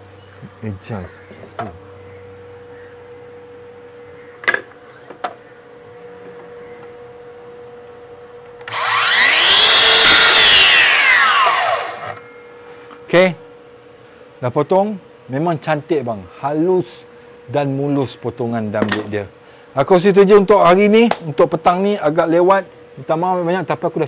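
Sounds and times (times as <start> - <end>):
mitre saw motor whine: 5.8 - 13.0
saw cutting through wood: 8.7 - 12.2.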